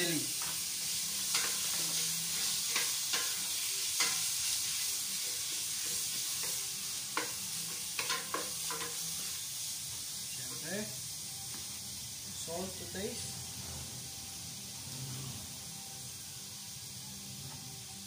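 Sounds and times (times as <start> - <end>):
pork sizzling in oil: 0.0 - 18.0.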